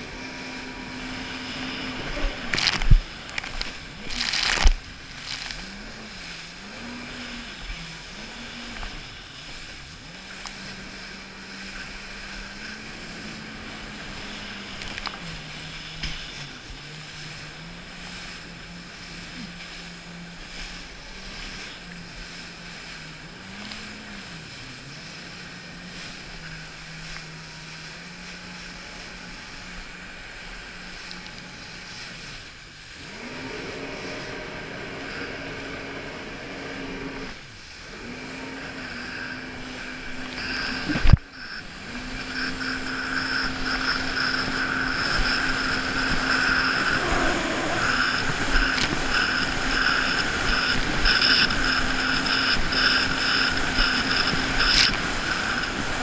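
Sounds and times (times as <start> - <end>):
jet ski engine running: 0.0 - 56.0.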